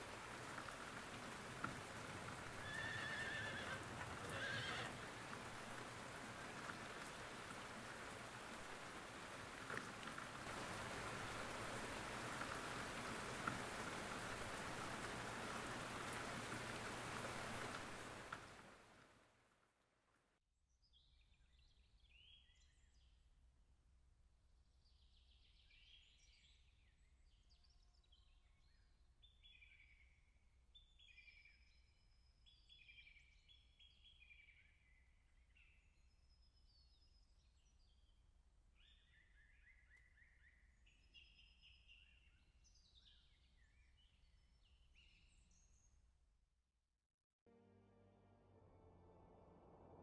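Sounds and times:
steady rain falling: 0.0s - 19.8s
horse neighing: 2.6s - 5.1s.

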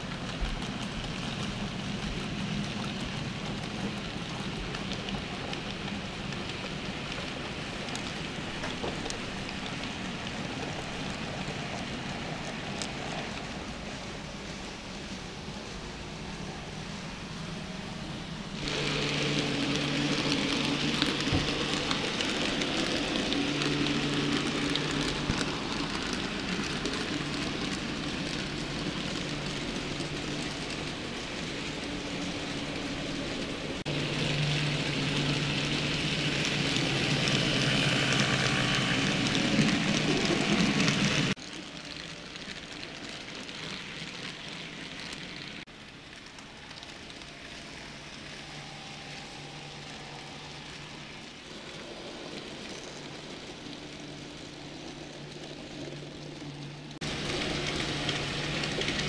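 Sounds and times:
wheels rattling on track: 0.0s - 59.0s
model train motors whirring: 14.5s - 41.4s, 42.4s - 59.0s.

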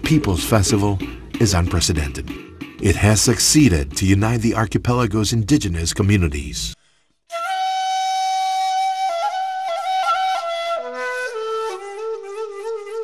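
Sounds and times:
solo flute melody: 7.3s - 13.0s.

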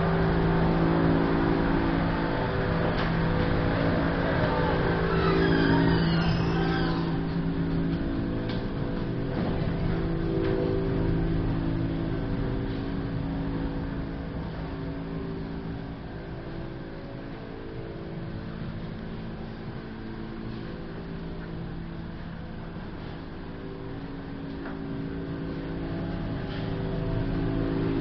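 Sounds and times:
motor humming: 0.0s - 28.0s.

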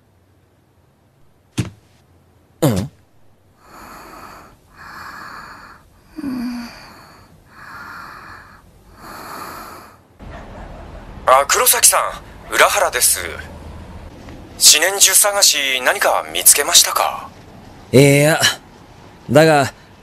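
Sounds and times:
girl breathing in sleep: 3.6s - 10.1s.

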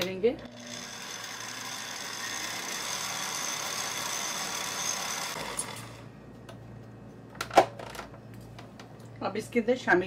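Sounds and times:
stand mixer motor whining: 0.4s - 6.0s.

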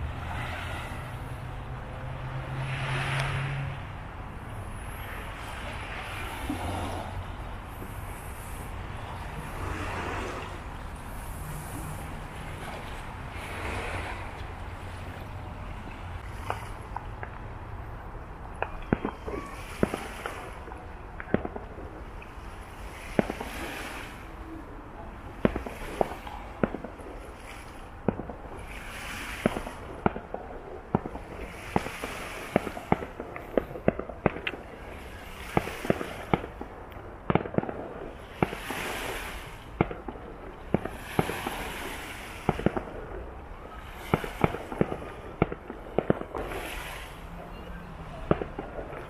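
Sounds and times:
fireworks crackling: 0.0s - 17.5s, 18.4s - 24.4s, 25.1s - 49.0s
fireworks bangs and pops: 18.5s - 24.1s, 25.3s - 47.4s, 48.0s - 49.0s.

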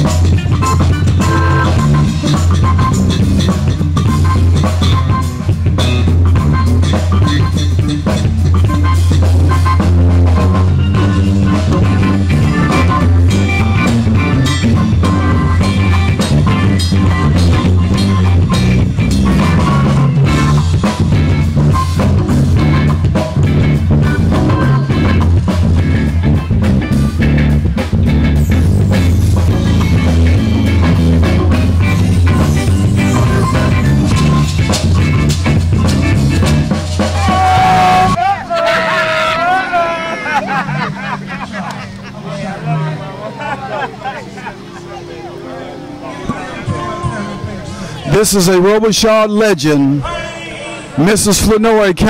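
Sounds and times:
electric bass line: 0.0s - 38.2s
live band playing: 0.0s - 50.2s.

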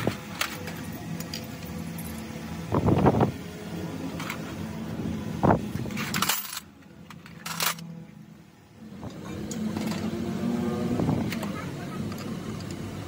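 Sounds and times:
metal tools clinking: 5.9s - 7.9s.

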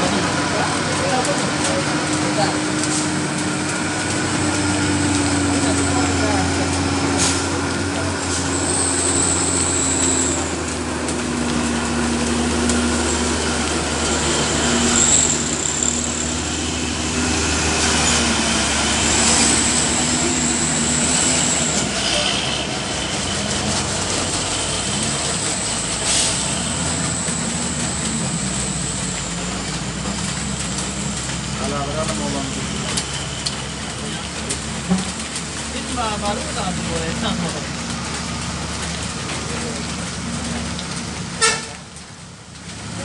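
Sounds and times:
truck diesel engine running: 0.0s - 43.0s.

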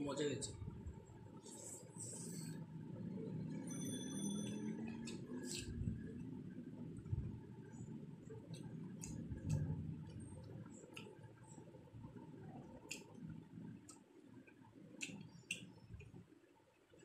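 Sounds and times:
squishing and chewing food: 7.2s - 17.0s.

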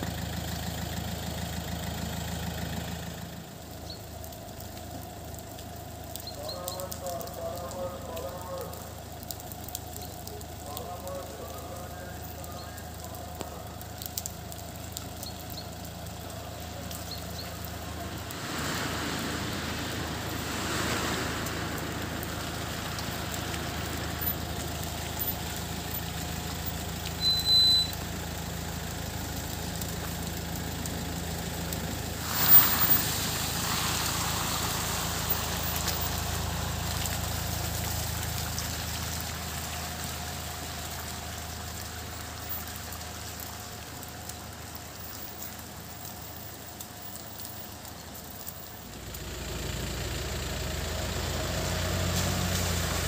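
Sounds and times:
minibus engine running: 0.0s - 53.0s
tyres on wet road: 0.0s - 53.0s
short sharp hiss: 32.2s - 35.3s.

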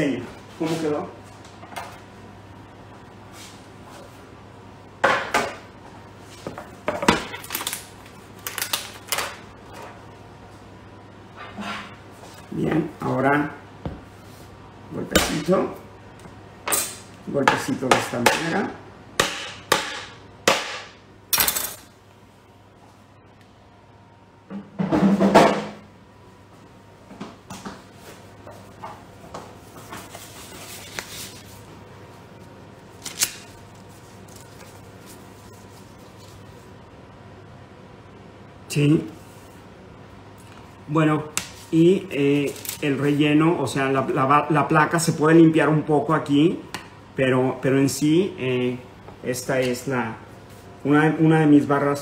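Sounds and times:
paper rustling: 29.7s - 31.7s, 33.0s - 36.6s, 42.4s - 42.8s.

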